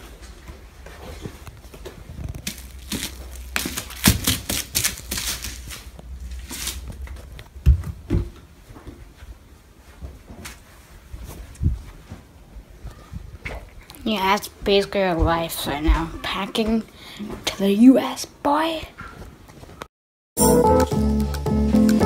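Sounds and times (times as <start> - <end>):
bubble wrap popping: 2.1 - 7.1.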